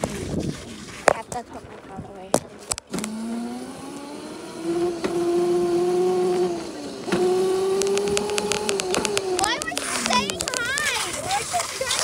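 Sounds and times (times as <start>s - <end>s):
electric scooter motor whining: 2.8s - 11.1s.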